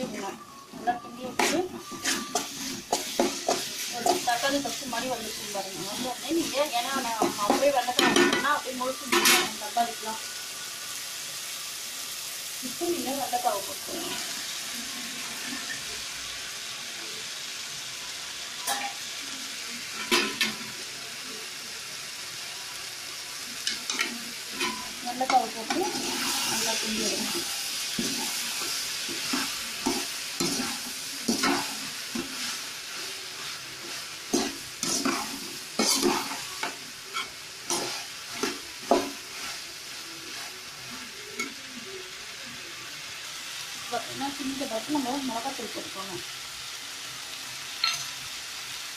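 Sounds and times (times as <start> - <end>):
spatula scraping and knocking pan: 0.0 - 9.6, 23.7 - 39.6
vegetables sizzling in oil: 0.0 - 48.9.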